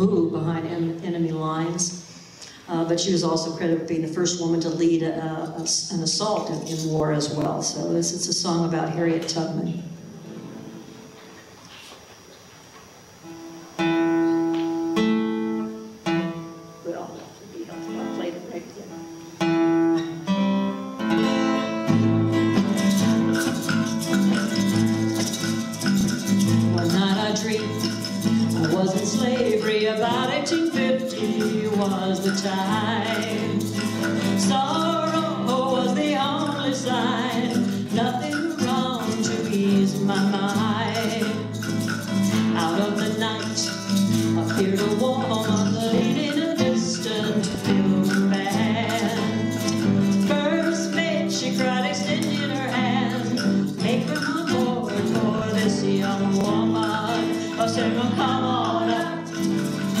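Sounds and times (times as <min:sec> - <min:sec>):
acoustic guitars strummed: 0:00.0 - 1:00.0
hand percussion: 0:21.0 - 1:00.0
women singing: 0:26.6 - 1:00.0.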